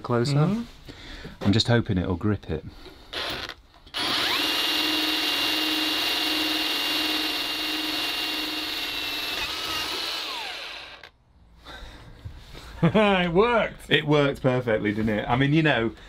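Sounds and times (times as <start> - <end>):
cordless drill drilling steel: 3.1 - 11.2.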